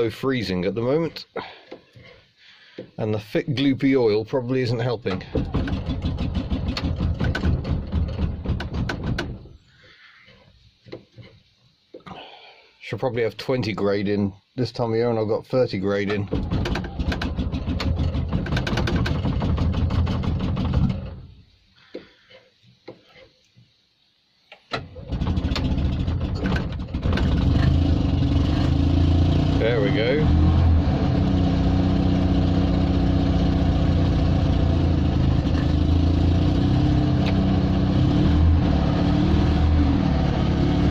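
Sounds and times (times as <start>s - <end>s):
engine cranking on starter: 5.0s - 9.5s, 16.0s - 21.4s, 24.6s - 40.9s.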